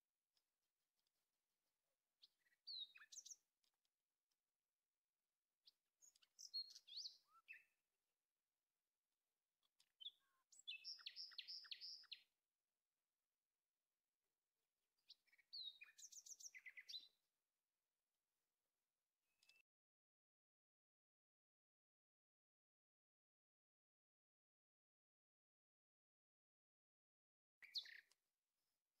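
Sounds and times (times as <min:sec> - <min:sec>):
small birds chirping: 0:02.0 - 0:04.5, 0:05.5 - 0:07.9, 0:09.6 - 0:12.4, 0:15.0 - 0:17.3, 0:19.3 - 0:19.7, 0:27.6 - 0:28.3.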